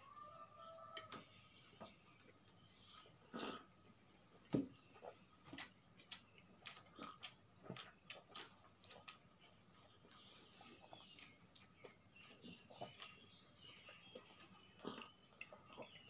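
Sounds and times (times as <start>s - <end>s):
person chewing bread: 1.7s - 16.0s.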